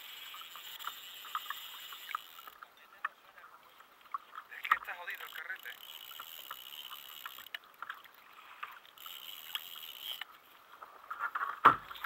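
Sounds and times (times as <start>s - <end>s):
water lapping against kayak hull: 0.0s - 12.0s
small clicks and knocks: 0.2s - 3.2s.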